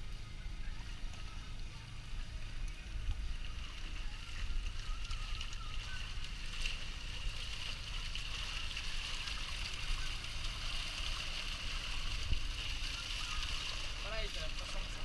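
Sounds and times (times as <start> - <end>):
low steady rumble: 0.0 - 15.0
water splashing and sloshing: 0.0 - 15.0
fish thrashing in a net: 3.7 - 15.0.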